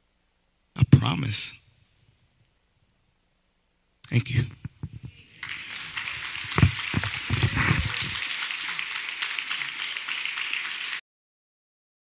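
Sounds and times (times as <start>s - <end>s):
microphone handling thumps: 4.4s - 5.2s, 6.1s - 8.2s
audience applauding: 5.3s - 11.0s.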